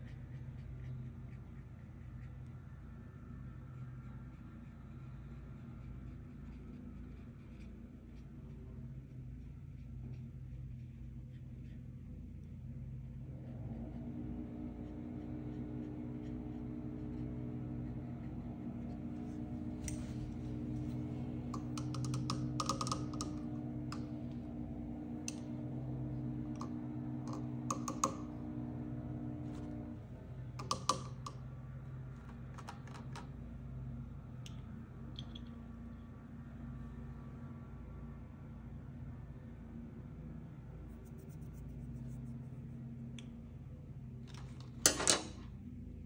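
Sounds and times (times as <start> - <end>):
steady low hum: 0.0 - 46.0
small clicks and taps: 20.8 - 24.4, 26.5 - 28.4, 30.6 - 31.5, 32.2 - 33.4, 34.4 - 35.6.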